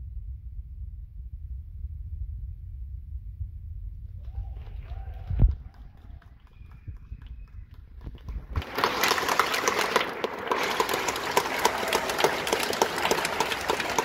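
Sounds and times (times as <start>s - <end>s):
audience applause: 4.2s - 14.0s.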